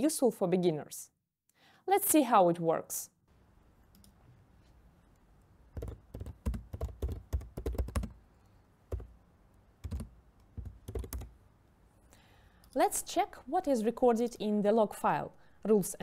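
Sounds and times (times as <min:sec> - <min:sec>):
typing on laptop keyboard: 0:05.8 - 0:08.2, 0:08.9 - 0:09.1, 0:09.8 - 0:11.4.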